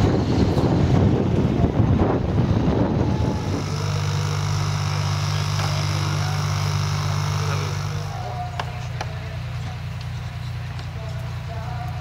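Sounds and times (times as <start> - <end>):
wind buffeting microphone: 0.0 - 4.9
model aircraft engine idling: 3.0 - 12.0.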